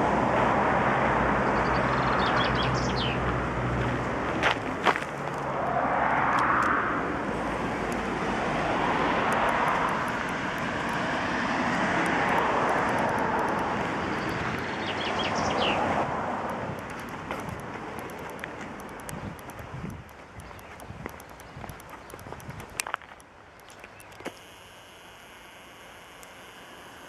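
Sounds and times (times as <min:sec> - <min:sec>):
cars passing: 0:00.0 - 0:23.0
bird chirping: 0:01.5 - 0:03.2, 0:13.5 - 0:15.9, 0:20.3 - 0:22.4
sharp clicks: 0:04.8 - 0:27.0.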